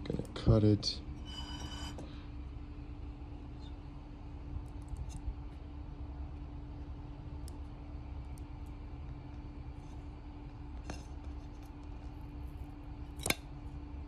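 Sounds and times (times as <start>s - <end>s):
steady low hum: 0.0s - 14.0s.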